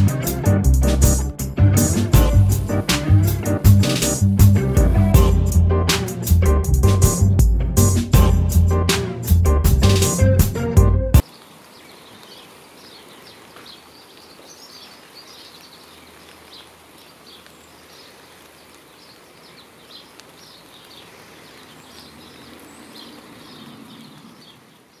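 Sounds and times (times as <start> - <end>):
faint outdoor background hiss: 11.2 - 25.0
small birds chirping: 11.2 - 25.0.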